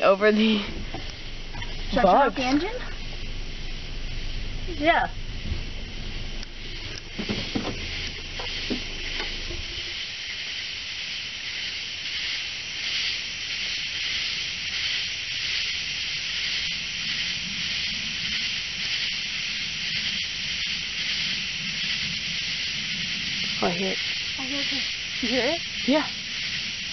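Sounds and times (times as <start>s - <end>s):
car engine idling: 0.0s - 10.5s
night insect chorus: 0.0s - 26.9s
engine knocks: 5.2s - 10.0s.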